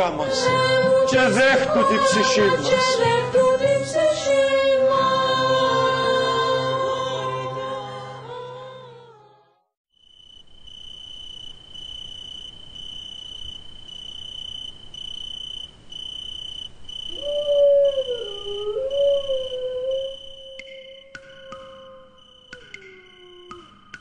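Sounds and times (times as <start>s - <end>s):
crickets chirping: 9.9s - 24.0s
dog howling: 17.1s - 23.8s.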